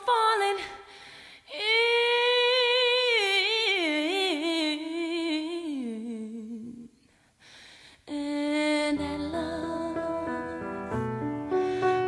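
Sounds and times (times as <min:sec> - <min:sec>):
person singing without words: 0:08.1 - 0:12.0.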